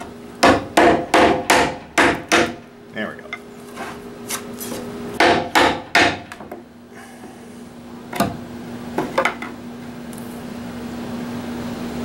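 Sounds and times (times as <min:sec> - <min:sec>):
hammer striking chisel: 0:00.4 - 0:02.6, 0:05.2 - 0:06.5.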